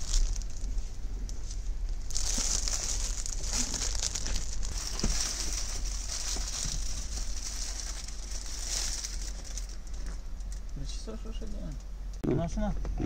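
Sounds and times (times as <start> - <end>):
foil sheet crinkling: 0.0 - 10.2.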